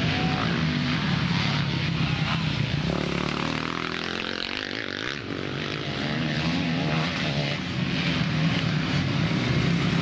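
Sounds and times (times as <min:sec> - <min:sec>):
motocross bike engine: 0:00.0 - 0:10.0.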